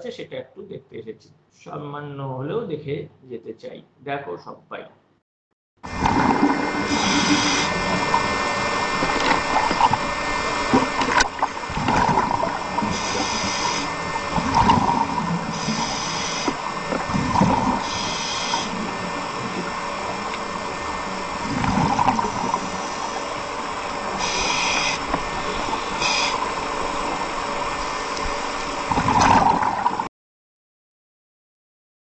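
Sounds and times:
underwater bubbling: 0:05.9 - 0:30.1
regulator hiss: 0:06.0 - 0:28.9.

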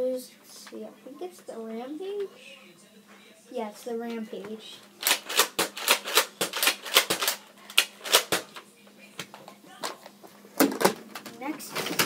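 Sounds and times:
dart blaster plastic clacks: 0:05.0 - 0:08.6.

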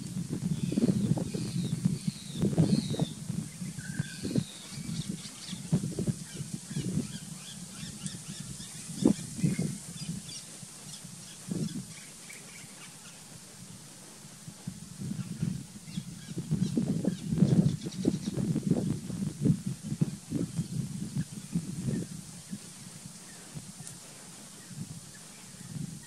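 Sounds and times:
bird chirps and calls: 0:00.6 - 0:13.2.

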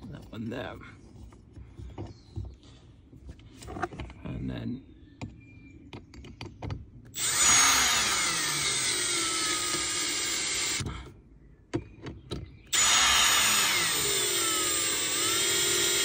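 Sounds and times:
cordless drill driving a bolt: 0:07.2 - 0:10.8, 0:12.7 - 0:16.0.

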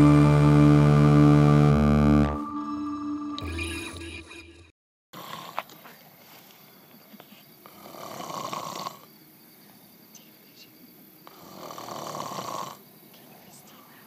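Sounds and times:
man snoring: 0:07.7 - 0:09.1, 0:11.3 - 0:12.8.

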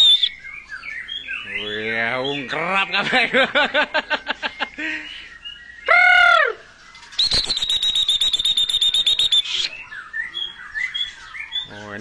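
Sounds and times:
songbirds singing: 0:00.0 - 0:12.0
fast rattling bird trill: 0:06.7 - 0:12.0
loud rising and falling whistle: 0:07.2 - 0:09.8.

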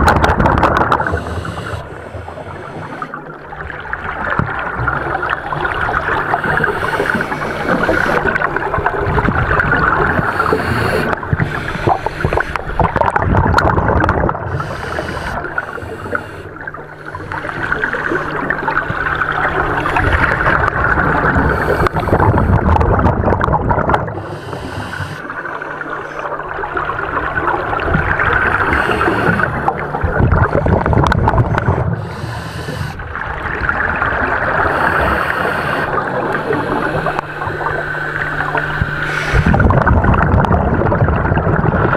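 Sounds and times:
bubbling exhalations: 0:00.0 - 0:41.9
regulator hiss: 0:01.0 - 0:03.2, 0:06.2 - 0:08.5, 0:10.0 - 0:12.8, 0:14.5 - 0:20.6, 0:21.3 - 0:22.6, 0:24.2 - 0:26.3, 0:28.4 - 0:33.1, 0:34.5 - 0:39.8.

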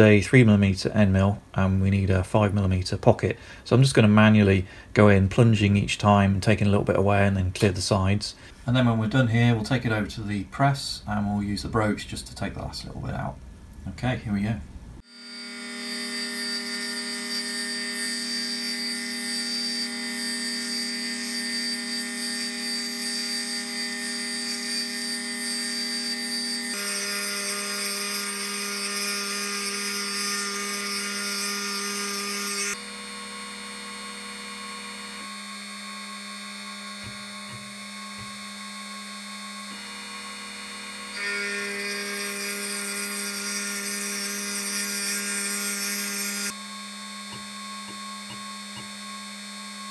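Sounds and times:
milling machine spindle whine: 0:15.1 - 0:49.9.

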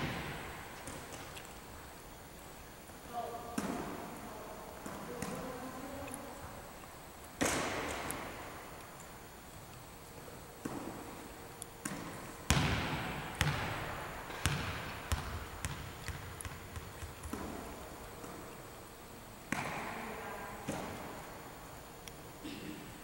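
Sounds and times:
volleyballs bouncing on gym floor: 0:00.0 - 0:01.3, 0:03.5 - 0:04.2, 0:04.8 - 0:05.8, 0:07.4 - 0:08.4, 0:10.6 - 0:18.5, 0:19.5 - 0:21.2.

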